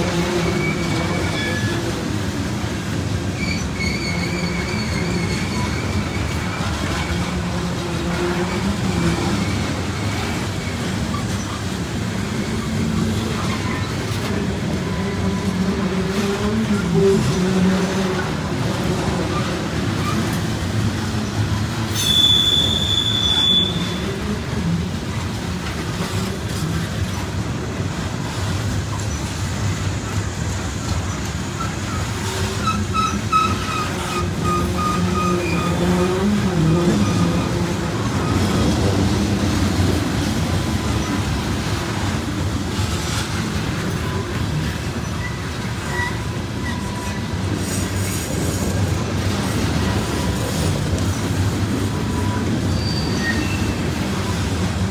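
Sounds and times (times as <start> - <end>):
steel wheels rumbling on rail: 0.0 - 54.9
high-pitched wheel squeal: 0.2 - 2.0, 3.3 - 7.3, 21.9 - 24.1, 31.5 - 39.0, 43.8 - 48.4, 52.0 - 54.4.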